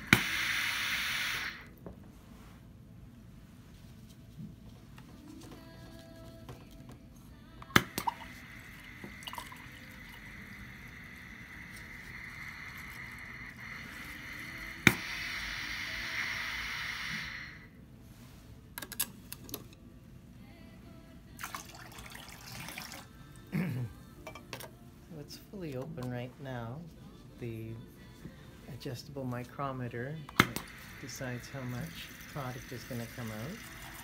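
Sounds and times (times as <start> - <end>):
water stream hissing into beaker: 0.0 - 1.7, 7.8 - 17.7, 30.4 - 34.0.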